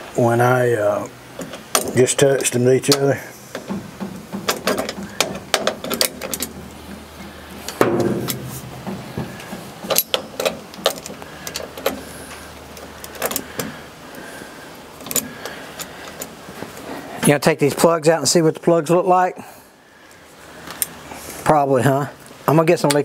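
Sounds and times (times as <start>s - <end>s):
metal tools clicking and clinking: 4.4s - 6.6s, 7.7s - 12.0s.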